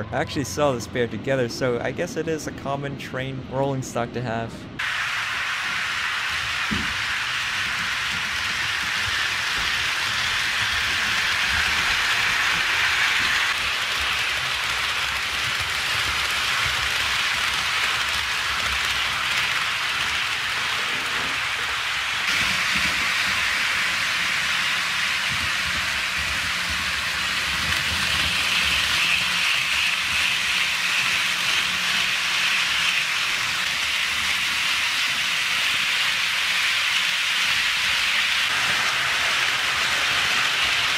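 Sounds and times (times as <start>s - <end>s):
model train wheels on rail: 4.8s - 40.9s.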